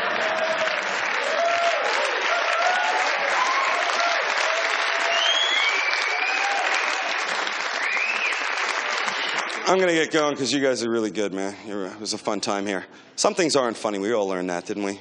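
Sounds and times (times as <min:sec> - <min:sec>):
audience applauding: 0:00.0 - 0:10.2
whoops and shouts: 0:00.1 - 0:07.2.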